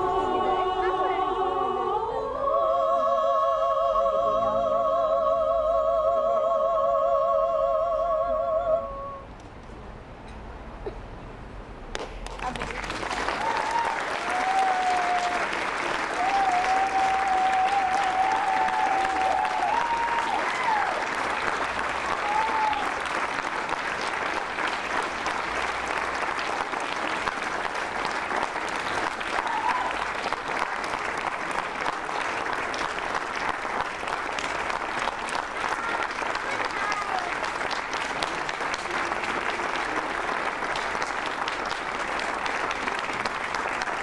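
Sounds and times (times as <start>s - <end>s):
audience clapping: 11.9s - 44.0s.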